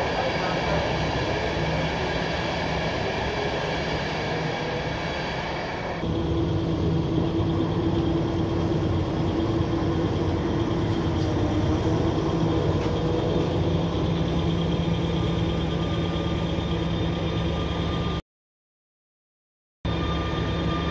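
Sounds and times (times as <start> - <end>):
diesel engine running: 6.0 - 18.2.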